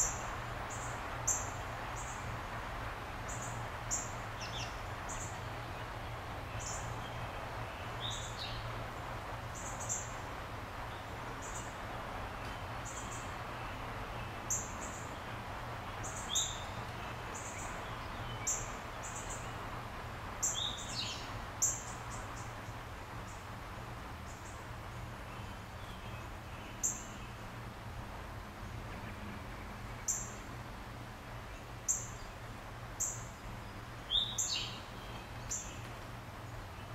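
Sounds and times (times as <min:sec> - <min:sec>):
birds chirping: 0:06.1 - 0:08.7, 0:33.0 - 0:36.9.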